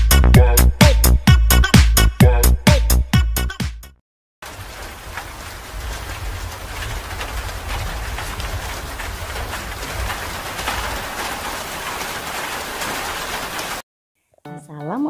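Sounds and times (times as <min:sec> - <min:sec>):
heavy rain on wet paving: 0:04.4 - 0:13.8.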